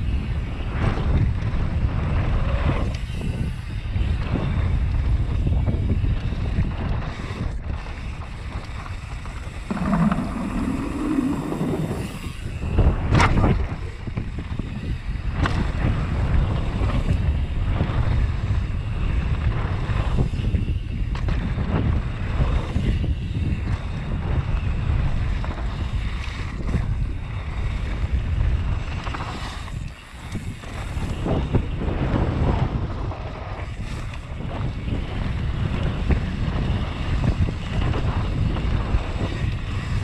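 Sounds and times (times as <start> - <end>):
bike clattering over bumps: 0.0 - 40.0
wind on microphone: 0.0 - 40.0
tyres rumbling on dirt: 9.2 - 13.4.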